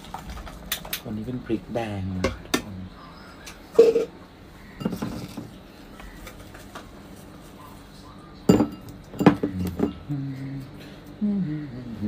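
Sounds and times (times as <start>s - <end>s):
kitchenware clinking on glass bowl: 4.8s - 5.5s, 8.5s - 10.1s.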